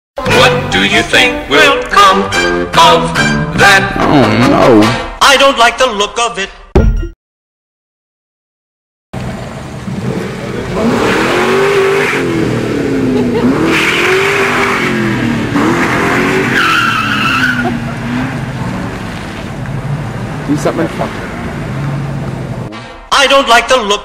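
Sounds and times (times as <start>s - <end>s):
car engine revving: 9.2s - 23.0s
tires squealing: 9.9s - 22.9s.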